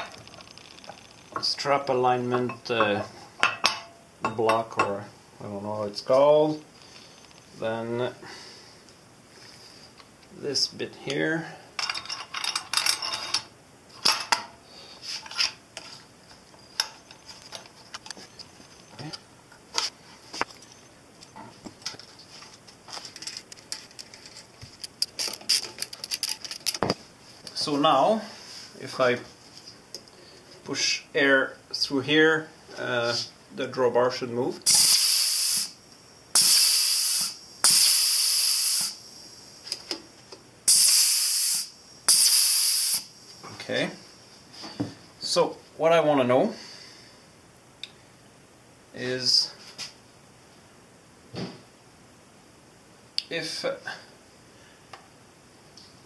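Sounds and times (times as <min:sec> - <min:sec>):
metal parts clinking: 0:11.8 - 0:14.5, 0:22.5 - 0:26.8
compressed air hissing: 0:34.6 - 0:39.7, 0:40.7 - 0:43.2.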